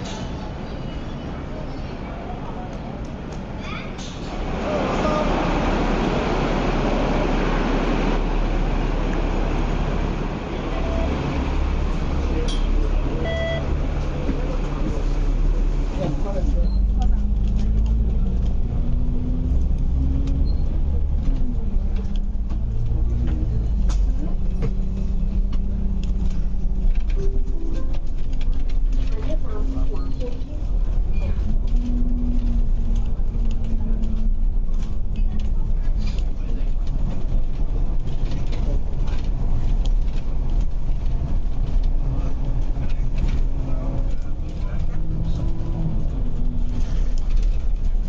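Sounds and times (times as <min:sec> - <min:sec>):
bus engine rumble: 0:00.0 - 0:48.0
interior rattles and clicks: 0:15.8 - 0:48.0.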